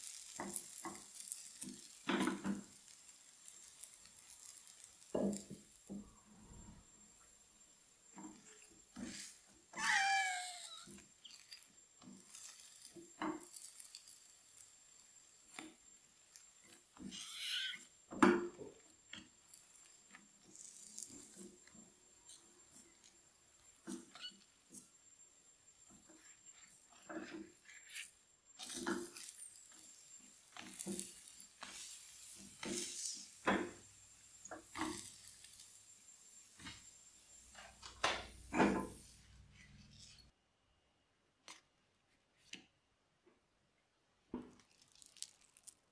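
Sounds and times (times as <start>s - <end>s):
spatula scraping a frying pan: 0.0s - 6.8s, 8.1s - 18.0s, 25.9s - 33.8s, 34.4s - 35.8s.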